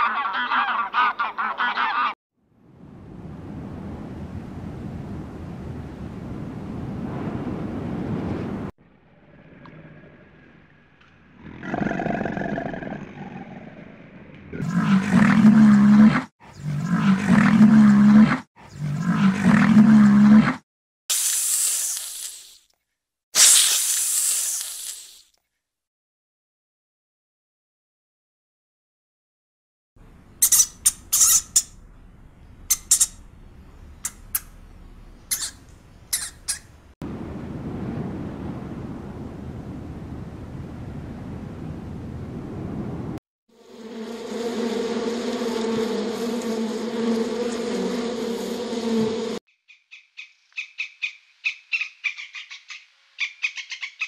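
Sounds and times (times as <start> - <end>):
wind rumbling on microphone: 2.6 - 8.7, 36.8 - 43.2
wild animal roaring: 9.0 - 20.6
rat squeaking: 30.4 - 31.8, 32.6 - 33.2, 34.0 - 34.6, 35.3 - 36.7.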